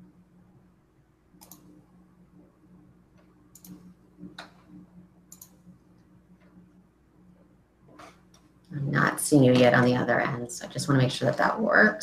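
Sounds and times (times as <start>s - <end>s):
faint low electrical hum: 0.0s - 12.0s.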